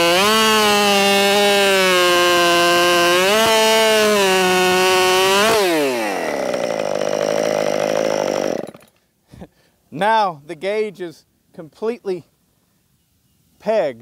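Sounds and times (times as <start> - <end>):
chainsaw cutting log: 0.0 - 9.0.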